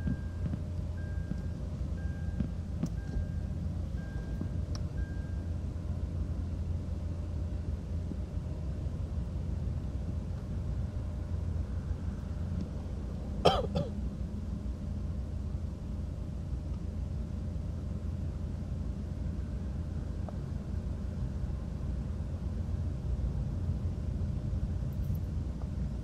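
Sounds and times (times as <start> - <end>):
low background rumble: 0.0 - 26.0
person clearing throat: 13.4 - 14.0.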